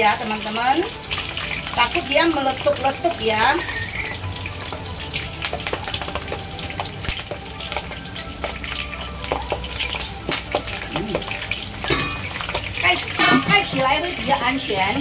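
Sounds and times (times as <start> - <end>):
oil sizzling: 0.0 - 15.0
skimmer stirring oil: 0.0 - 15.0
oil popping and spitting: 5.0 - 13.5.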